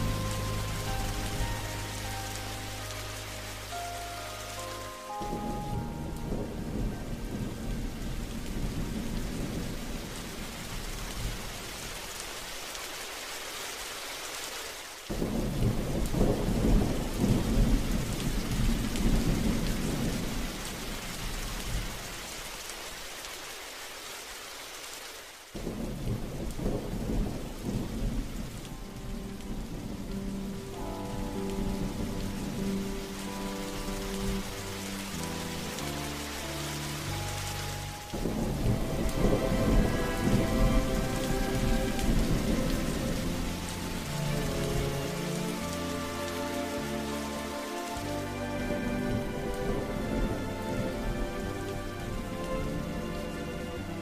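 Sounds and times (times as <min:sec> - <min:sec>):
soft music: 0:00.0 - 0:12.2, 0:15.1 - 0:21.9, 0:25.6 - 0:54.0
steady rain: 0:00.0 - 0:54.0
rolls of thunder: 0:05.2 - 0:12.0, 0:15.1 - 0:22.1, 0:25.6 - 0:33.1, 0:38.1 - 0:45.3, 0:48.7 - 0:51.5.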